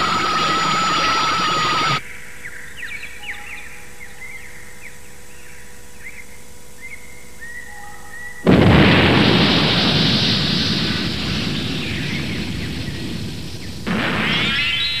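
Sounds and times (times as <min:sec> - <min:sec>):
cartoon explosion blast: 0:08.5 - 0:15.0.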